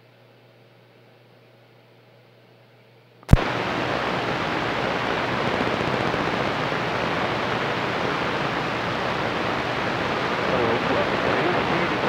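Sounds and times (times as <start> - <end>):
radio static hiss: 3.3 - 12.0.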